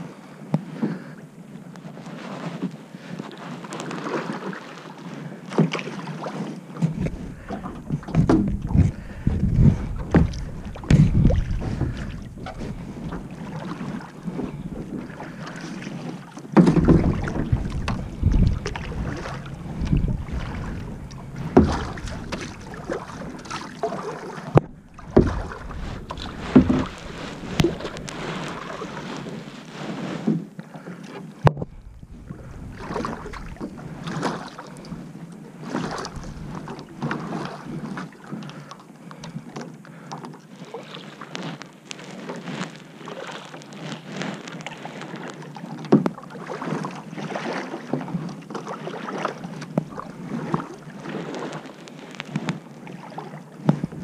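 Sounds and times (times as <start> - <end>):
paddle splashing in water: 1.9 - 54.0
water washing: 6.8 - 30.0, 31.4 - 38.1.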